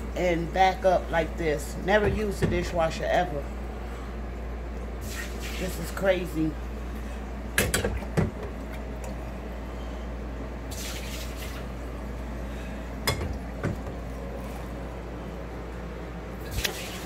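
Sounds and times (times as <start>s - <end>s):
water splashing: 10.7s - 11.8s, 16.4s - 17.0s.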